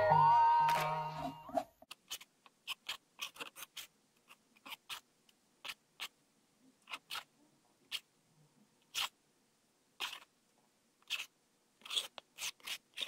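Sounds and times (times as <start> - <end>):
palette knife scraping and tapping: 1.9 - 5.0, 10.0 - 10.3, 11.0 - 13.0.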